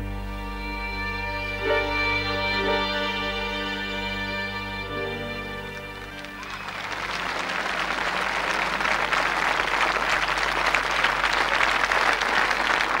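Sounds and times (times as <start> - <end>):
large audience applauding: 5.4 - 13.0.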